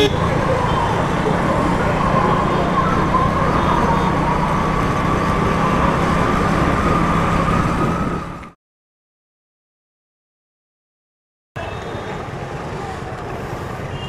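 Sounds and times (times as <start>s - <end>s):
motorcycle engine: 0.0s - 8.6s
police car siren: 0.0s - 8.6s
wind: 0.0s - 8.6s, 11.6s - 14.0s.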